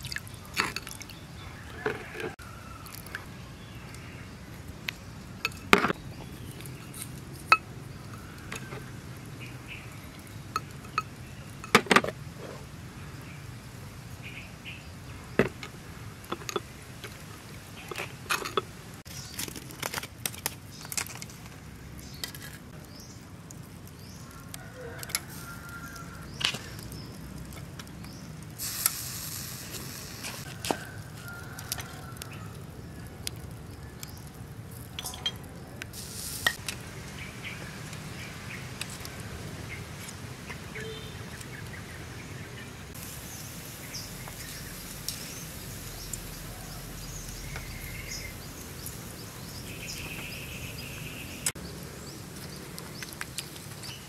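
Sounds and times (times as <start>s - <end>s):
brief hiss: 28.6s - 30.4s
metal spoon clinking on dishes: 35.0s - 35.5s.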